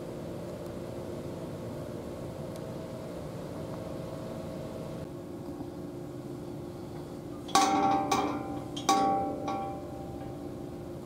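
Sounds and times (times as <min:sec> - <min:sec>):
sharp metallic knocks: 0:07.5 - 0:10.5.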